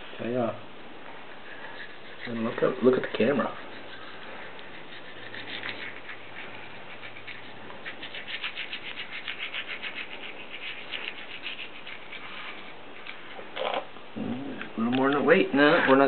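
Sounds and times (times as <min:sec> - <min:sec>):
toothbrush scrubbing teeth: 0:01.4 - 0:13.3.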